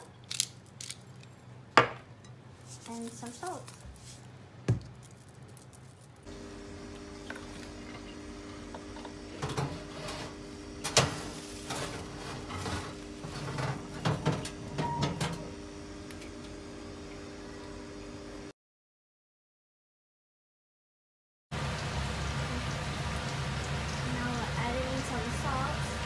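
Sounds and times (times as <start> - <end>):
oven fan humming: 0.0 - 18.5, 21.6 - 26.0.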